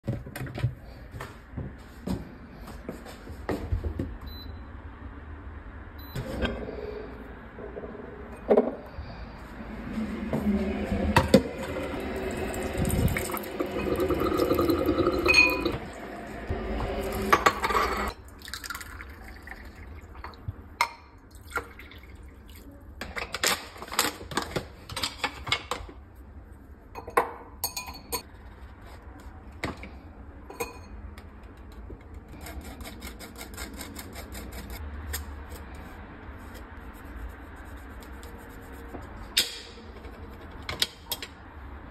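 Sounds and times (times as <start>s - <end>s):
water running into glass: 11.6s - 15.9s
glassware clinking on countertop: 15.0s - 15.8s, 27.0s - 28.2s, 30.5s - 30.9s.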